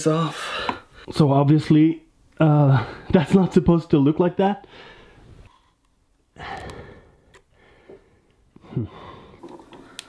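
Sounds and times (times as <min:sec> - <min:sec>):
man sighing: 0:08.6 - 0:09.4.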